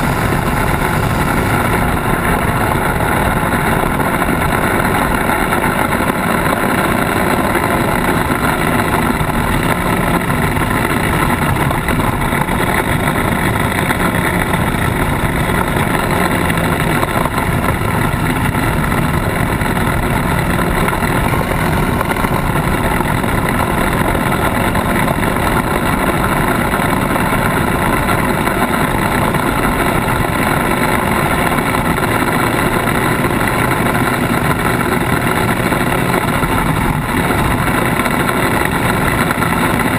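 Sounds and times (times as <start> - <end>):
off-road vehicle engine and tyres: 0.0 - 39.9.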